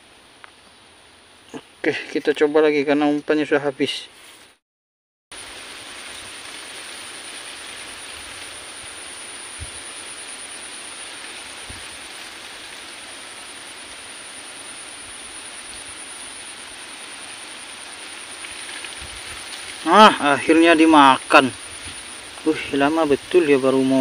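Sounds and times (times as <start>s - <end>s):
even hiss: 5.4s - 24.0s
high-pitched insect drone: 5.4s - 24.0s.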